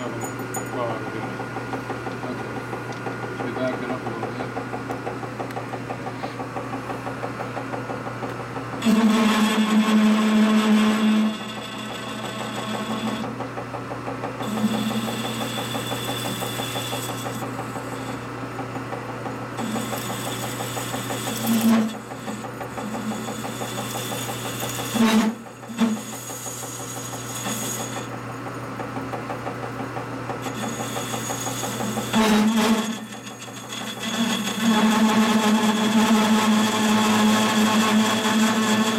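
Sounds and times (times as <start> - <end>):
machine tool cutting metal: 8.8 - 13.4, 14.4 - 28.2, 30.3 - 38.9.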